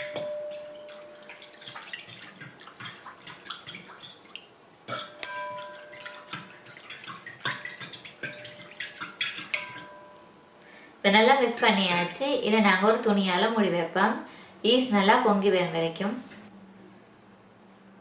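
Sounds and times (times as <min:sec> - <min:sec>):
spoon knocking ringing bowl: 0:00.0 - 0:01.8, 0:04.8 - 0:10.4
spoon clinking glass bowl: 0:00.0 - 0:10.4, 0:11.5 - 0:12.2
liquid swishing: 0:00.2 - 0:10.1.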